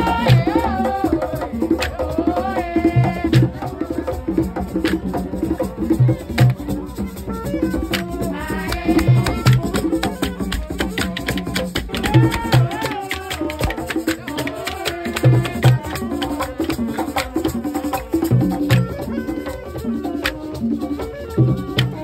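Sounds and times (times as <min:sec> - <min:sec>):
hand drums beating fast rhythm: 0:00.0 - 0:22.0
voices singing along: 0:00.0 - 0:22.0.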